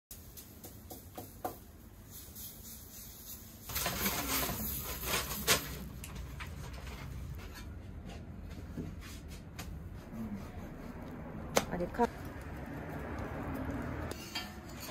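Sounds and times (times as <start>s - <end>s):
batter sizzling on griddle: 0.1s - 7.4s.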